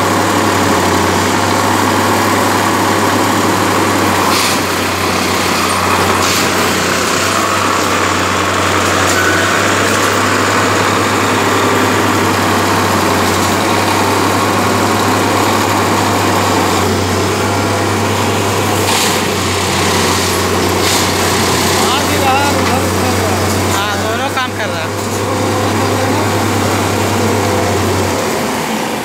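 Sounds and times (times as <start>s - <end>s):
machine engine humming: 0.0s - 29.0s.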